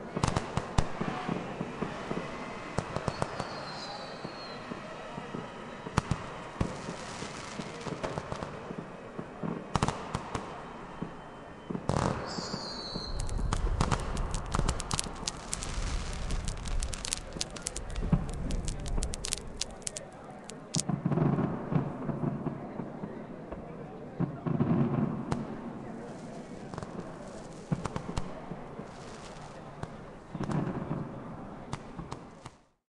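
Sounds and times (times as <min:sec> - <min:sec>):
fireworks bangs: 0:00.0 - 0:23.0, 0:24.2 - 0:32.6
fireworks crackling: 0:00.1 - 0:11.2, 0:11.8 - 0:22.2, 0:24.8 - 0:32.6
firework whistle: 0:01.0 - 0:08.1, 0:10.5 - 0:20.8.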